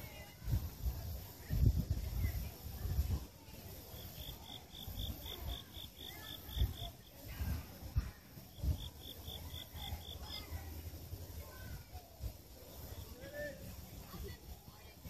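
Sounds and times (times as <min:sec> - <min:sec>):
insect chirping: 0:03.7 - 0:07.2, 0:08.5 - 0:10.5.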